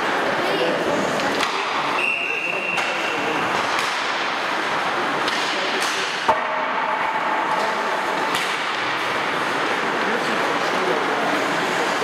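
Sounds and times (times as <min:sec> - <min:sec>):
hockey sticks and pucks clacking: 0:01.2 - 0:10.5.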